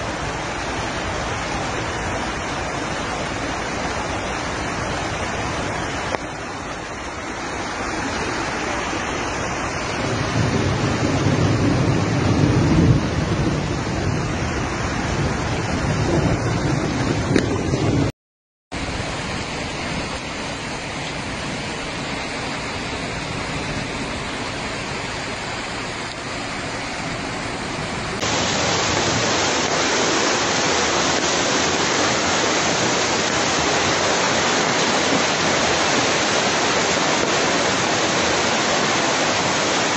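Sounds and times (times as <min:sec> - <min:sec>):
floodwater rushing along street: 0:00.0 - 0:18.1, 0:18.7 - 0:39.9
heavy rain: 0:00.0 - 0:18.1, 0:18.7 - 0:39.9
running water: 0:00.0 - 0:18.1, 0:18.8 - 0:39.9.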